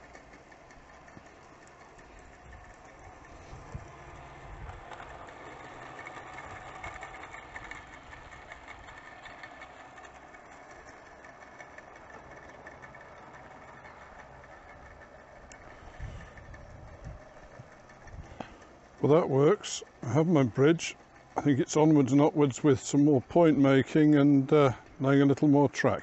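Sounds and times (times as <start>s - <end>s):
small clicks: 0.0s - 19.0s
model locomotive mechanical hum: 0.0s - 26.0s.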